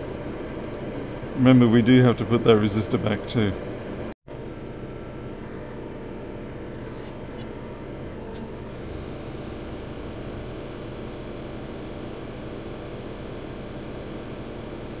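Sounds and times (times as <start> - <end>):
hot air station hissing: 8.6 - 15.0.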